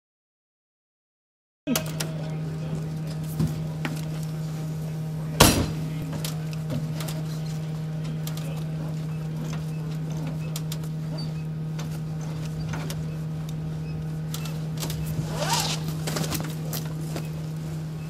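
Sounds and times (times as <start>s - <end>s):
steady low hum: 1.7s - 18.0s
fire hose and gear rustling: 2.8s - 18.0s.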